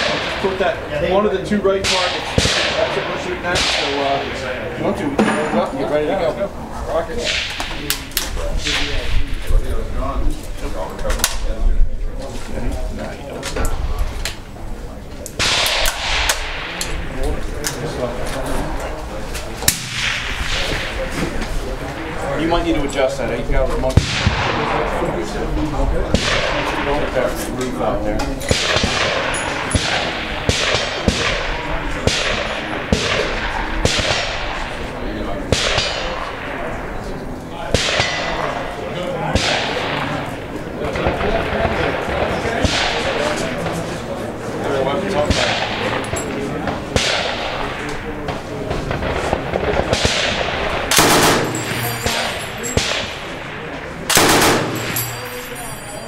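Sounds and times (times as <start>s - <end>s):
gunshots with echo: 0.0s - 1.0s, 1.8s - 5.7s, 7.1s - 9.3s, 15.4s - 18.1s, 19.7s - 22.6s, 23.9s - 25.4s, 26.0s - 27.3s, 28.5s - 56.0s
single sharp gunshots: 1.8s - 4.5s, 15.4s - 16.8s, 24.0s - 25.0s, 28.5s - 34.4s, 37.7s - 38.5s, 46.9s - 55.4s
machine gun bursts: 50.9s - 52.7s, 54.1s - 55.4s.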